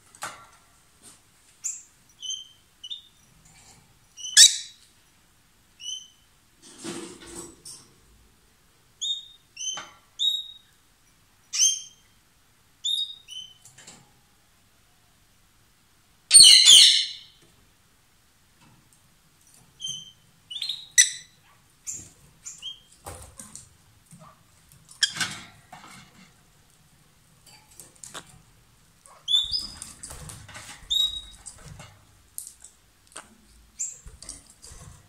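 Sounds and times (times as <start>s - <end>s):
birds chirping: 19.8s - 23.0s, 29.0s - 30.0s, 30.9s - 31.6s.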